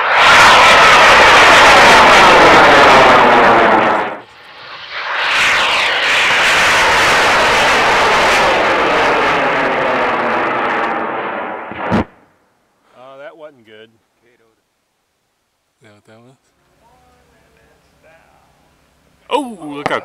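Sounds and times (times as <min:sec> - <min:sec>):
rocket motor roaring: 0:00.0 - 0:12.1
sharp crack: 0:11.0 - 0:12.3.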